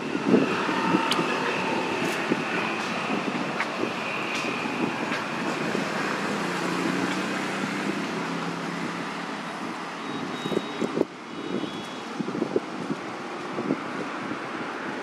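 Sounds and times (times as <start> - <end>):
distant engine humming: 0.0 - 8.0
outdoor background noise: 0.0 - 15.0.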